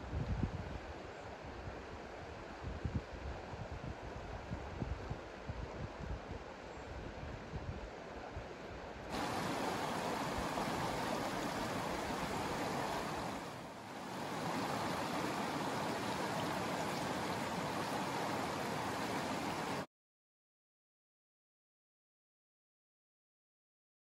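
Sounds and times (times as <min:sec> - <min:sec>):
river water rushing over rocks: 0:09.1 - 0:19.9.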